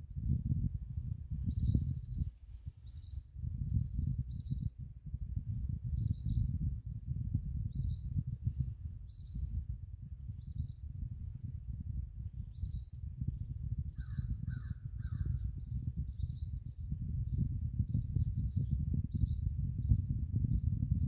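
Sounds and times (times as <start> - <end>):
small bird chirping: 1.4 - 4.8, 7.6 - 9.4, 12.5 - 16.6.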